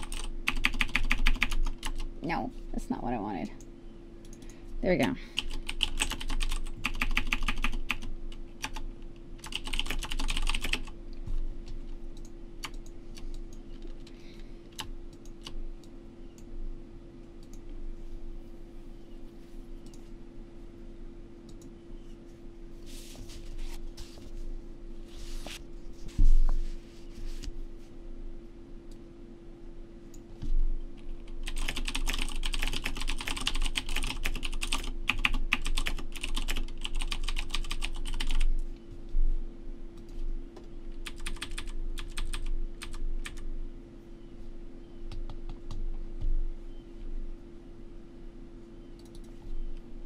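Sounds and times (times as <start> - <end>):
typing on computer keyboard: 0.0 - 2.1, 5.4 - 11.0, 12.2 - 14.1, 31.3 - 38.5, 41.0 - 43.4
steady hum: 0.0 - 50.0.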